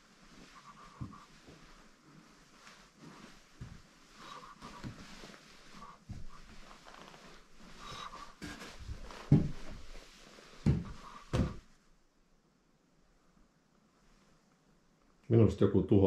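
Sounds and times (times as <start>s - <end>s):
floorboards creaking: 0.4s - 11.7s
footsteps on wooden floorboards: 0.4s - 11.7s.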